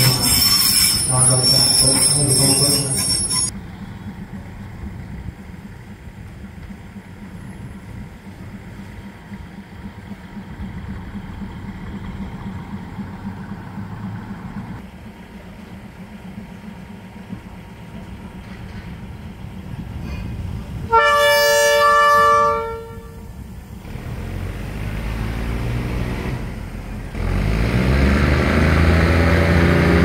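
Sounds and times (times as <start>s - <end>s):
train rumble: 0.0s - 30.0s
loud train horn chord: 20.9s - 23.4s.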